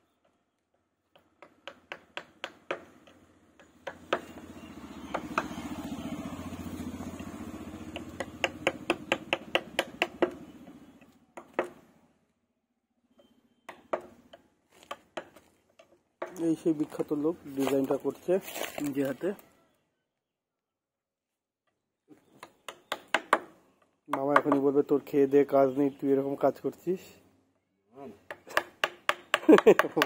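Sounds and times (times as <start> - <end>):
hammer striking chisel into wood: 1.1 - 4.5, 5.1 - 5.5, 7.9 - 10.5, 11.4 - 11.8, 13.2 - 15.4, 22.4 - 23.5, 24.1 - 24.6, 28.3 - 30.0
passing vehicle engine: 3.8 - 10.9.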